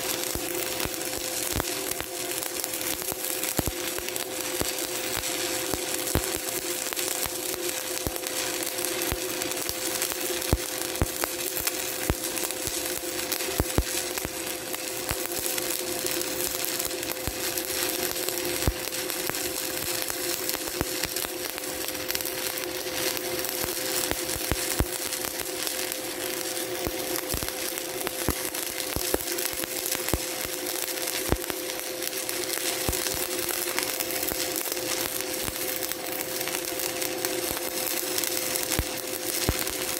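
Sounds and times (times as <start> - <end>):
crackling welding arc with pops: 0.0 - 39.9.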